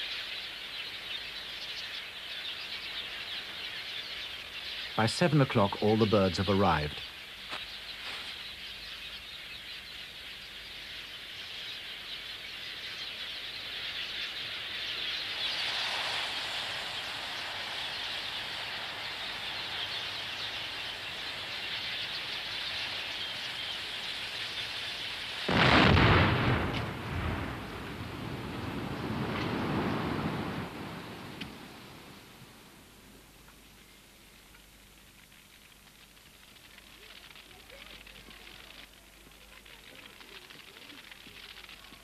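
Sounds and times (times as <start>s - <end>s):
dense bird chatter: 0.0s - 29.2s, 36.7s - 42.0s
loud explosion blast: 25.5s - 31.2s.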